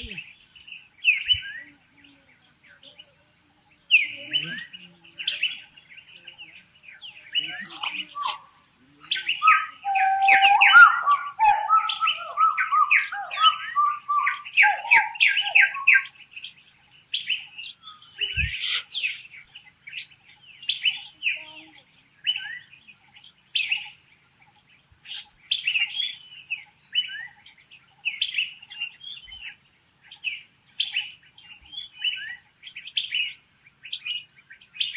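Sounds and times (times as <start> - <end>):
lower-pitched bird calls: 0.0 - 3.2, 3.8 - 16.2, 17.2 - 23.0
forest birds chirping: 0.0 - 34.9.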